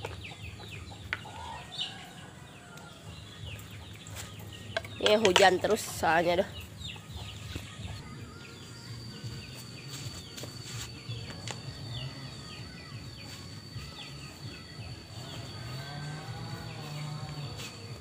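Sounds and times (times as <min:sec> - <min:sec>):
small birds chirping: 0:00.0 - 0:18.0
insect whine: 0:08.0 - 0:18.0.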